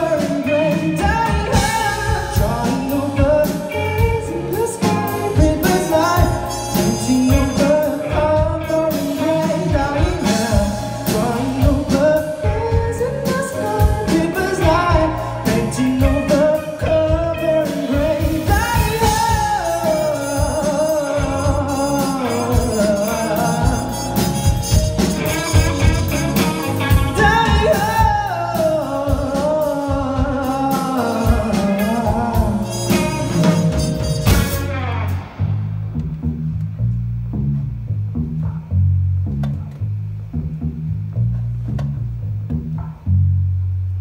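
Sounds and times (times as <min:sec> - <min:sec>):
man singing into a microphone: 0:00.0 - 0:24.4, 0:27.1 - 0:34.0
band with drums playing: 0:00.0 - 0:36.2.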